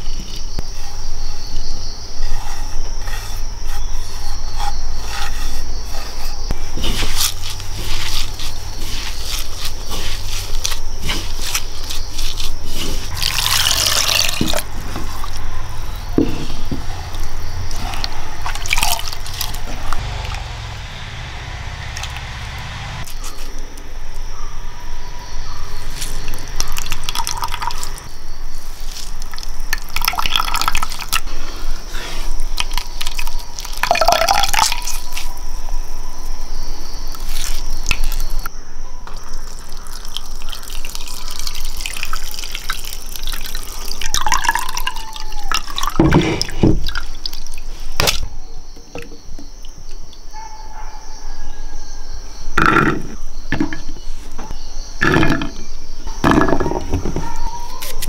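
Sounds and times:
hands squeezing wet coconut: 6.7 - 15.4, 16.0 - 20.0, 25.9 - 31.4, 32.2 - 35.4, 37.1 - 38.5, 39.1 - 48.2
liquid dripping and splashing: 13.1 - 15.3, 39.1 - 48.2.

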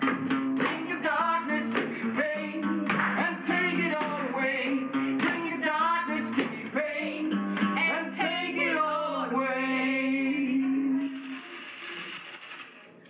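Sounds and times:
acoustic guitar strumming: 0.0 - 11.7
person singing: 0.6 - 11.5.

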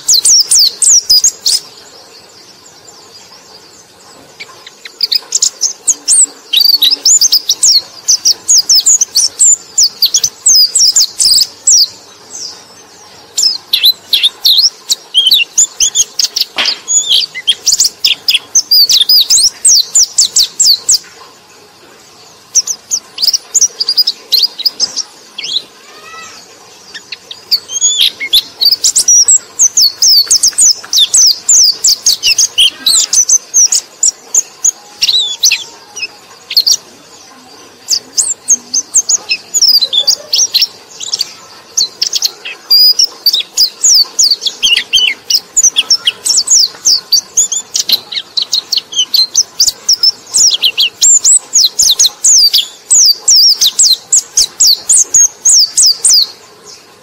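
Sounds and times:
bird twittering song: 0.0 - 57.0.

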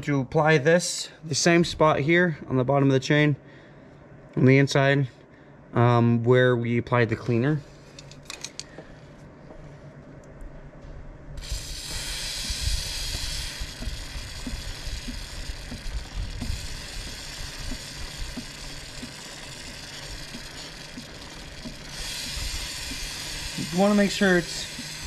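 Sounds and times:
aerosol spray can hissing: 11.4 - 25.0
chain ticking over sprocket: 11.4 - 25.0.

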